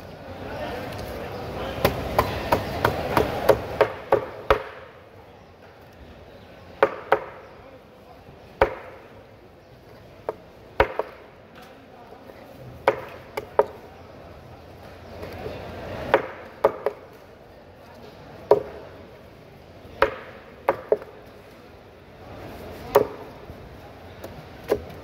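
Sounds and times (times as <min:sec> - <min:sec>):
knife chopping fish on wood: 0:01.8 - 0:04.7.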